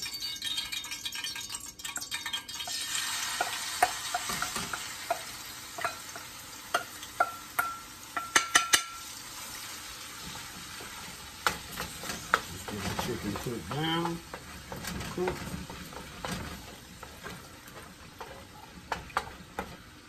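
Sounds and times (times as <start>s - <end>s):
chicken sizzling in hot oil: 0.0s - 20.0s
metal bowl clinking on wok: 3.4s - 9.1s.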